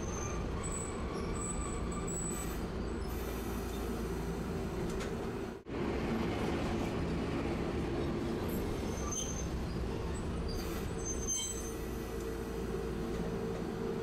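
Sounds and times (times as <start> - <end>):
streetcar wheels and motor rumbling: 0.0 - 14.0
high wheel squeals: 8.8 - 12.0.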